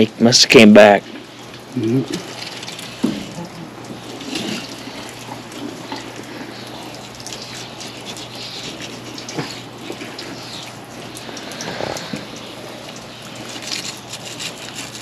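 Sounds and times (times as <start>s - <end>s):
steady rushing hiss: 0.0s - 15.0s
knife cutting fish: 13.5s - 15.0s.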